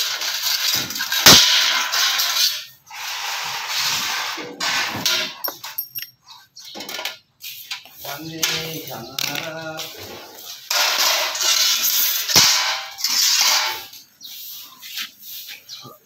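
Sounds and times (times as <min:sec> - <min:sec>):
plastic panel rustling and scraping: 0:06.6 - 0:15.8.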